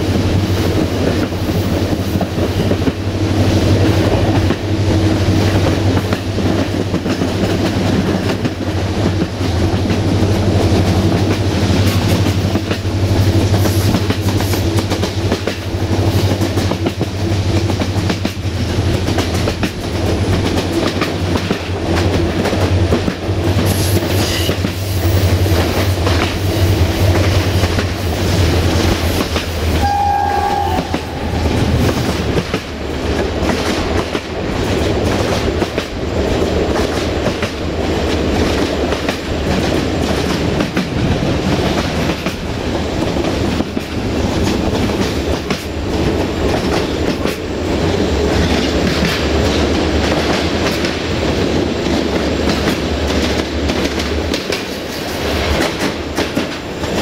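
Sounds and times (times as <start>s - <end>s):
train wheels clickety-clack: 0.0s - 57.0s
locomotive engine drone: 25.0s - 33.6s
train horn blast: 29.7s - 31.8s.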